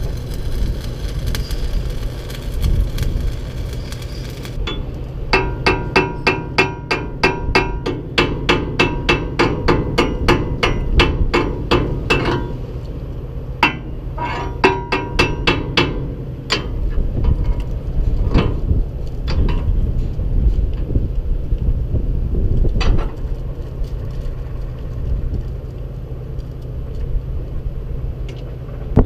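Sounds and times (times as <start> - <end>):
low rumble: 0.0 - 6.3, 9.9 - 29.0
hammer striking steel: 4.6 - 12.6, 13.6 - 16.8.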